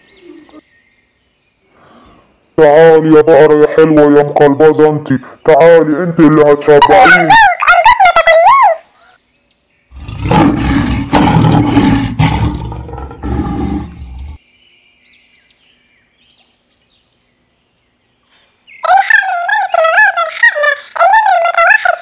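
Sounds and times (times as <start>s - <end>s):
faint bird chirps: 0.0s - 2.7s
tiger roaring: 9.9s - 14.4s.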